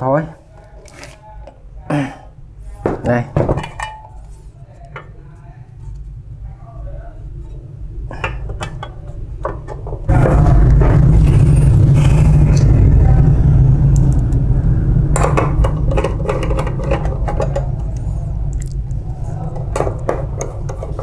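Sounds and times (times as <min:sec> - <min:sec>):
loud low rumble: 0:10.1 - 0:21.0.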